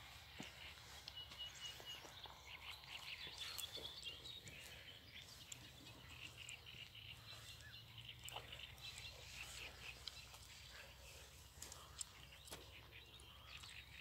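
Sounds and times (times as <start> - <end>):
high bird chirps: 0.4 - 14.0.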